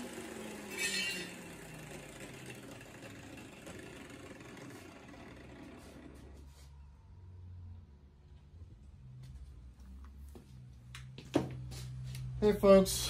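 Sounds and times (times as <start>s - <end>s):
power grinder motor winding down: 0.0s - 6.7s.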